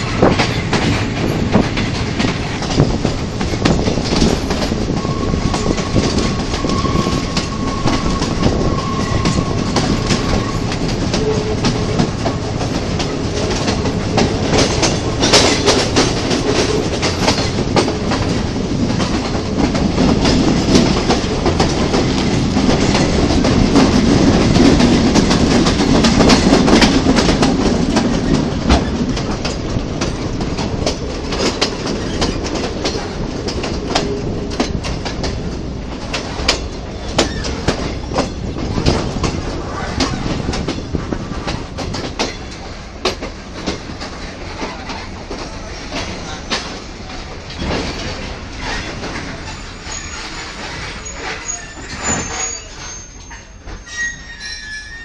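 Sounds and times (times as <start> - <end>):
train rumbling on rails: 0.0 - 55.0
high wheel squeal: 4.8 - 12.6, 48.6 - 55.0.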